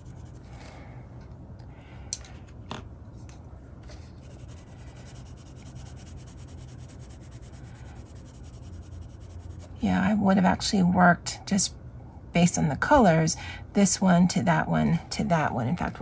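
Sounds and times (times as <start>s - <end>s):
pencil scratching on paper: 0.0s - 0.4s, 4.2s - 9.8s.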